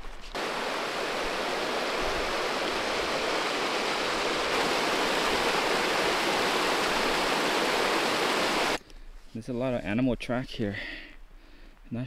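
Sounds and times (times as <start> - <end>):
creek flowing over rocks: 0.4 - 8.8.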